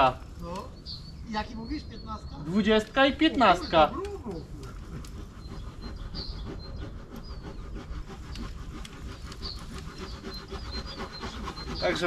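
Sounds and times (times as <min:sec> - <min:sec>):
faint bird chirps: 0:00.0 - 0:12.0.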